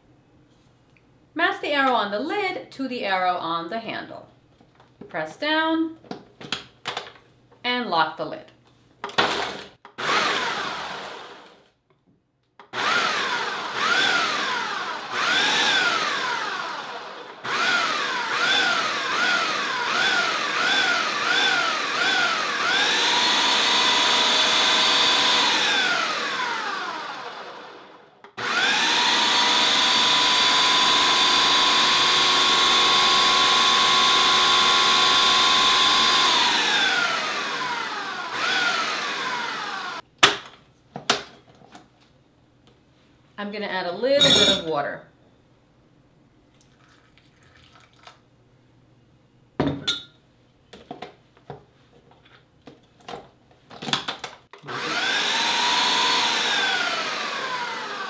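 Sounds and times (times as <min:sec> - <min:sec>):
food processor motor whining: 0:09.3 - 0:11.6, 0:12.7 - 0:40.0, 0:54.6 - 0:58.0.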